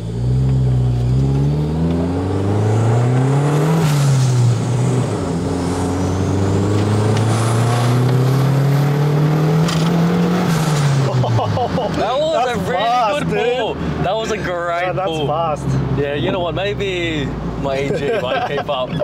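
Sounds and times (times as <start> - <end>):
turbocharged car engine accelerating: 0.0 - 19.0.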